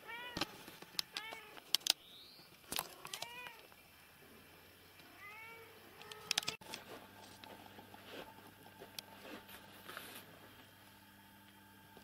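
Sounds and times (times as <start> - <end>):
sharp clicks: 0.9 - 2.0.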